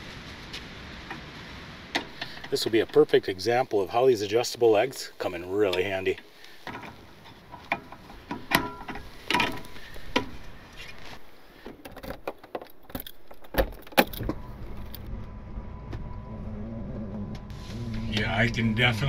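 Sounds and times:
metal step legs clinking: 6.6s - 10.4s
steady low hum: 14.1s - 19.0s.

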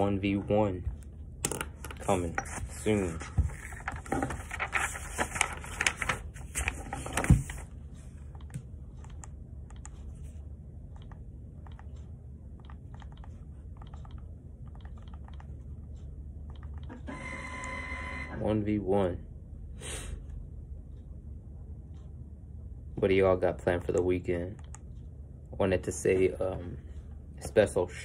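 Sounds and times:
steady low hum: 0.0s - 28.0s
paper rustling: 2.0s - 7.7s.

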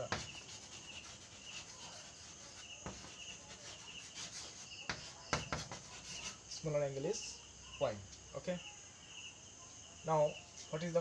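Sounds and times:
chalk scratching on a blackboard: 0.0s - 6.8s
cricket chirping: 0.0s - 11.0s.

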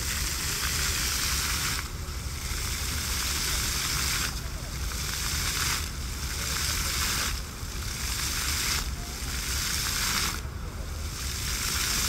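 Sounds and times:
fountain jets splashing: 0.0s - 12.0s.

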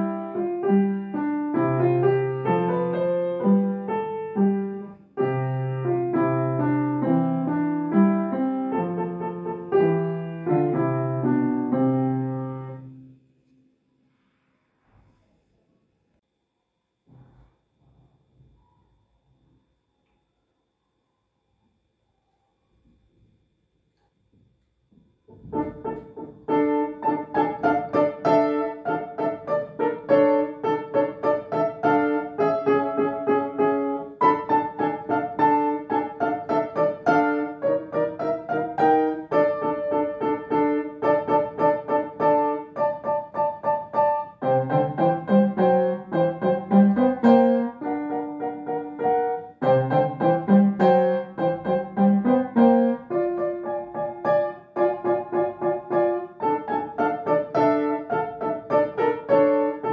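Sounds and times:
upright piano playing: 0.0s - 13.2s, 25.4s - 59.9s.

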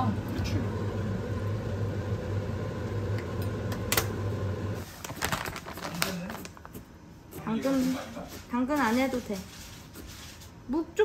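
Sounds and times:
low stove hum: 0.0s - 5.1s.

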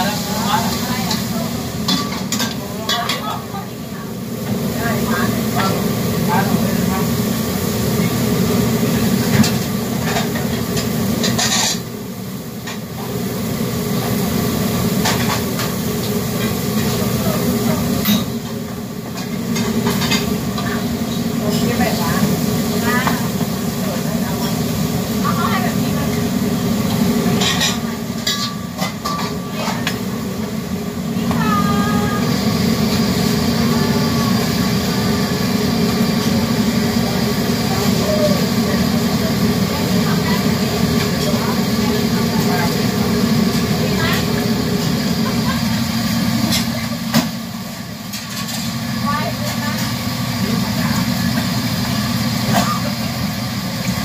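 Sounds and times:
food sizzling in a wok: 0.0s - 54.0s
gas burner and exhaust hood rush: 0.0s - 54.0s
burner roaring: 29.5s - 47.7s.

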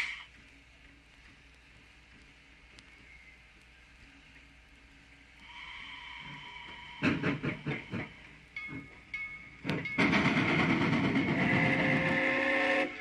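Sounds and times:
steam locomotive chuffing: 5.4s - 13.0s
steam whistle: 11.3s - 13.0s.

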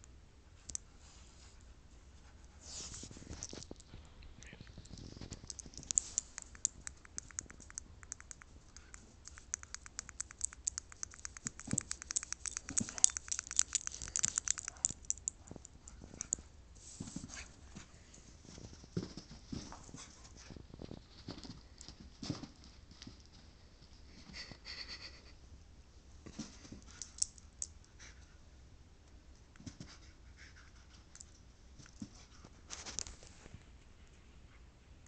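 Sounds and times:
dog claws scratching carpet: 4.8s - 7.9s, 8.8s - 18.0s
dog scrambling footsteps: 10.4s - 16.4s.

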